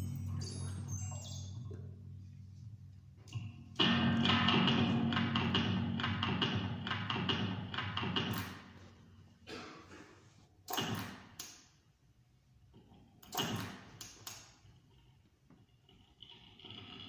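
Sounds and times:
faint sustained tone: 0:00.0 - 0:03.8
sharp electronic percussive hits: 0:03.3 - 0:08.7.

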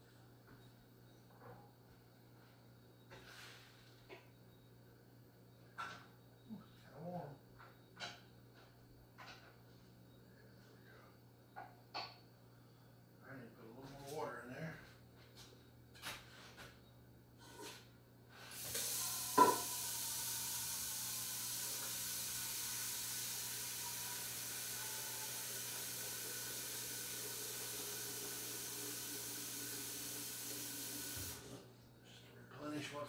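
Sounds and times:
steam hissing from a vent: 0:18.3 - 0:31.6.

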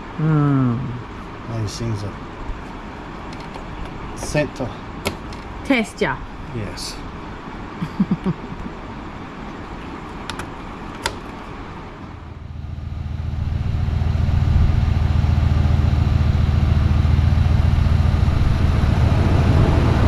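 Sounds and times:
engine idling: 0:10.2 - 0:20.0.

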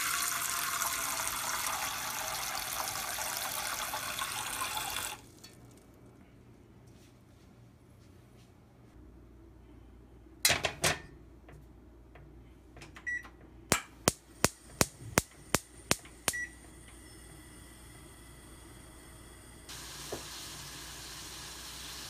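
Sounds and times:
gas burner hissing: 0:14.0 - 0:22.0.

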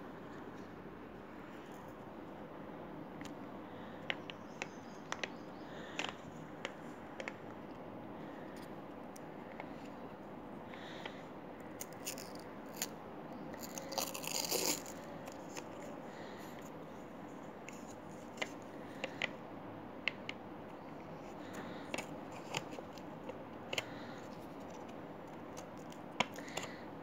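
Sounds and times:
label crinkling rustle: 0:11.6 - 0:16.6.

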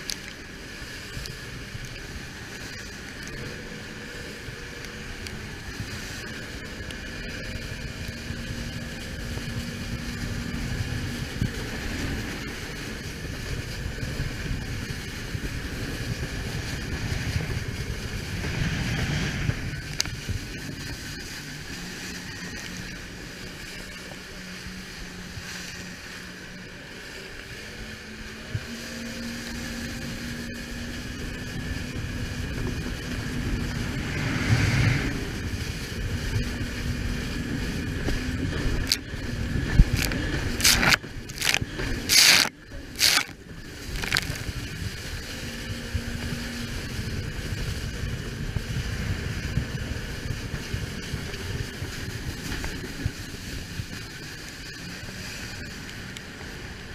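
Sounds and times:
jet ski engine running: 0:00.0 - 0:56.9
wind on microphone: 0:00.0 - 0:56.9
water spray: 0:39.9 - 0:43.3.

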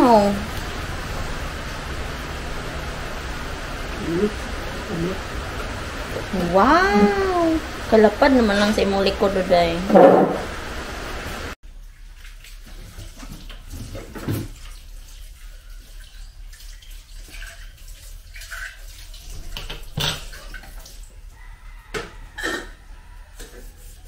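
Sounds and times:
water running from a tap: 0:00.0 - 0:21.5
dishes clinking: 0:22.0 - 0:22.8.

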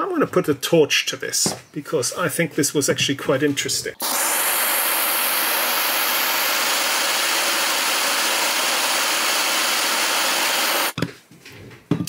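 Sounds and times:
blowtorch hissing: 0:04.0 - 0:11.0.

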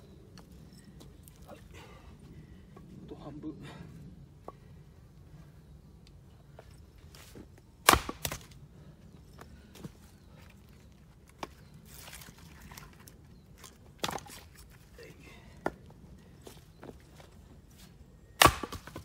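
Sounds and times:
axe splitting wood crack: 0:07.8 - 0:08.6, 0:14.0 - 0:14.6, 0:18.4 - 0:19.0.

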